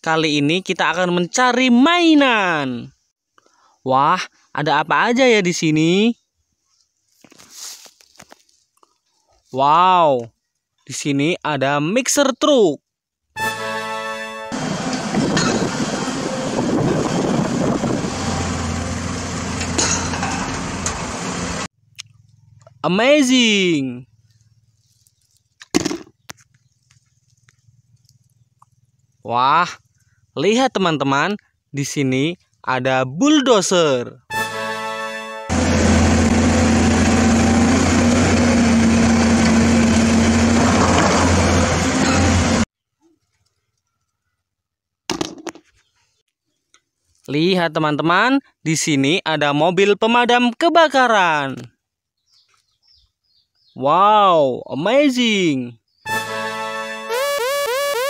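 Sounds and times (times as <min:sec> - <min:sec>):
concrete mixer rumbling: 0:14.6 - 0:21.7, 0:35.5 - 0:42.6
low engine hum: 0:14.6 - 0:22.8, 0:35.5 - 0:42.6.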